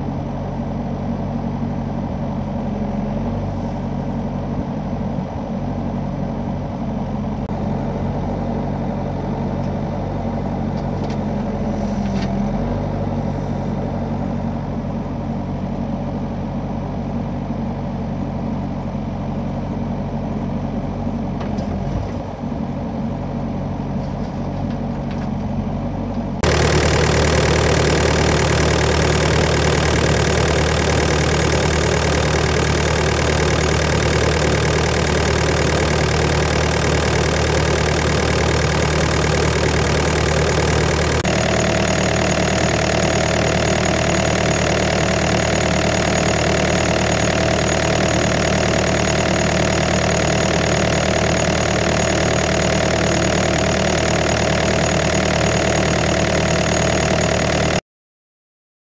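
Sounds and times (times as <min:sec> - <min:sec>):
diesel engine idling: 0:22.3 - 0:57.8
high whine: 0:26.4 - 0:57.3.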